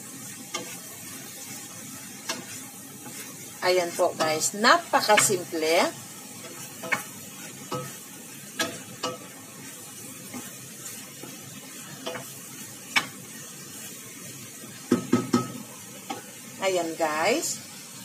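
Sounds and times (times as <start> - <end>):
food sizzling in a pot: 0.0 - 18.0
wooden spoon knocking pot: 14.9 - 15.6.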